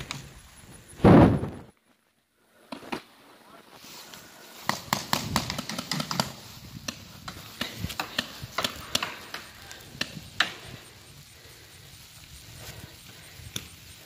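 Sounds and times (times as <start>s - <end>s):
paintball markers firing: 4.6s - 10.7s.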